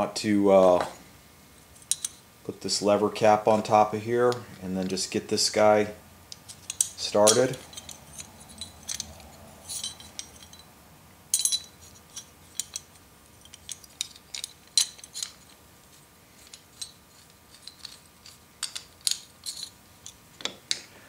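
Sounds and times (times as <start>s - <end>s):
metal plane parts clicking: 1.8s - 2.2s, 6.3s - 10.6s, 11.4s - 15.6s, 16.4s - 20.8s.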